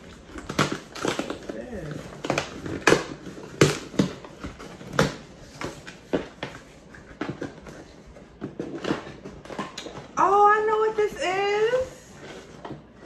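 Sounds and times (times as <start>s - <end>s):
packaging crackling and rustling: 0.0s - 10.4s.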